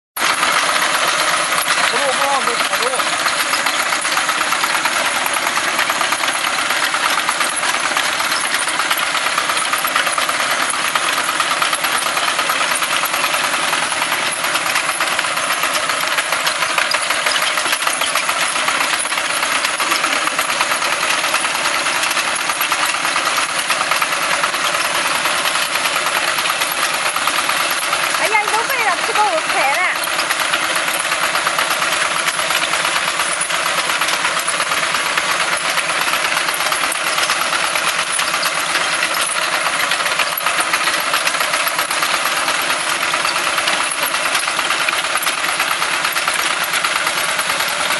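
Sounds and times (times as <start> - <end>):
tractor engine running: 0.2 - 47.9.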